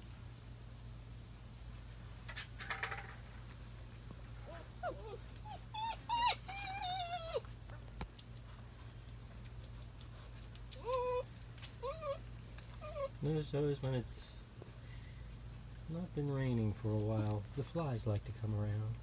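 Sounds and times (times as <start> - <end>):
puppy whining: 4.4 - 7.8, 10.6 - 13.3, 16.6 - 17.8.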